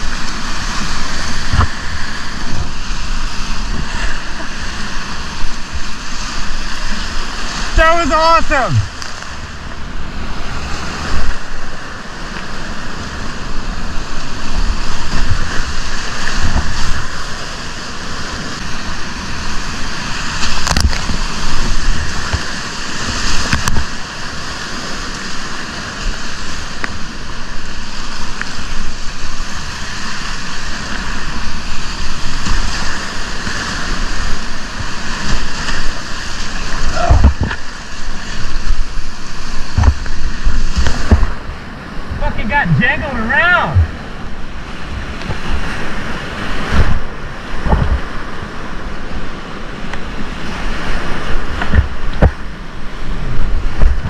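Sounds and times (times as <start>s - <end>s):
whitewater rapids rushing: 0.0s - 54.0s
water thumps and splashes: 14.9s - 17.1s, 34.2s - 41.5s, 46.6s - 48.2s, 51.3s - 52.5s.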